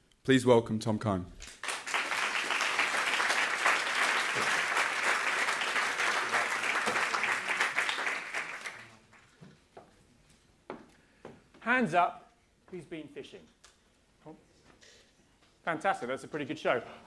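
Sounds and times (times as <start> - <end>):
audience applauding: 1.5 - 9.3.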